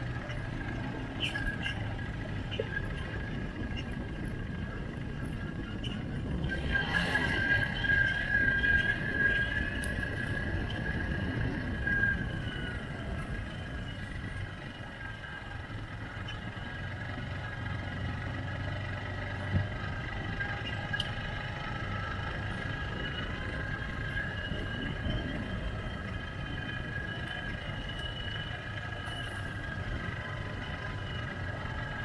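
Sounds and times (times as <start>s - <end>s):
atv engine running: 0.0s - 32.0s.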